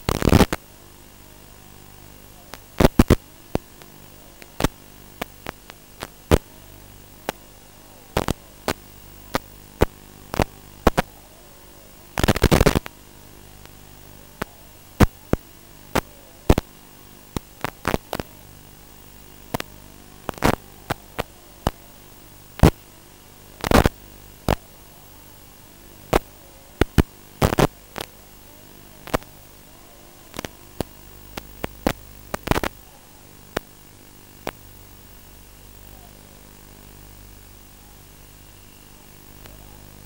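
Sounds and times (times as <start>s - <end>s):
faint hum: 0.0s - 40.0s
sharp crackles and pops: 0.0s - 40.0s
static hiss: 0.0s - 40.0s.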